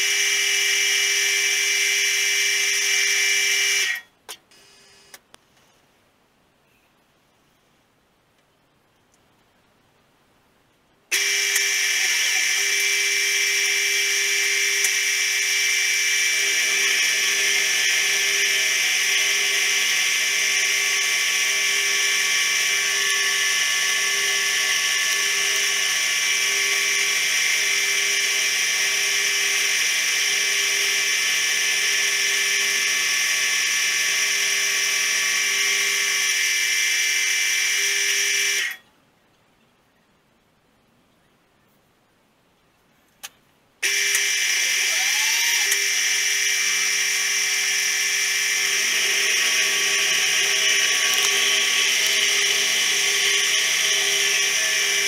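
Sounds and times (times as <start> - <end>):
milling machine whine: 11.1 - 38.7, 43.8 - 55.0
lower hum: 44.0 - 55.0.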